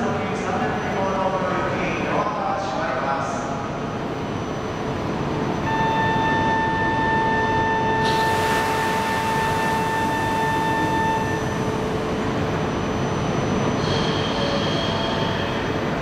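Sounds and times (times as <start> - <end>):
steady high tone: 5.6 - 15.0.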